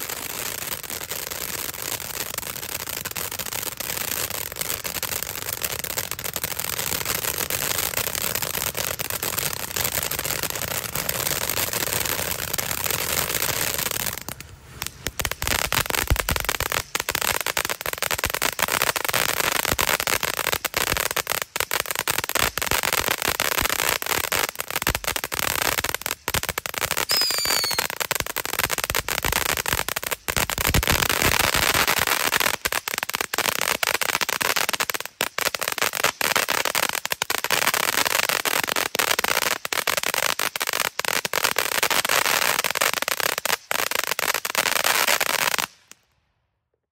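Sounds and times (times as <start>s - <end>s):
firework sparks crackling: 0.0s - 46.2s
firework pops: 26.4s - 28.4s
short falling whistle: 27.1s - 27.9s.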